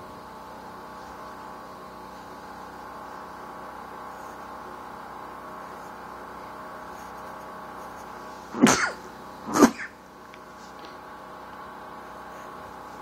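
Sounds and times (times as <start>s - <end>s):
steady background hum: 0.0s - 13.0s
person coughing: 8.6s - 10.0s.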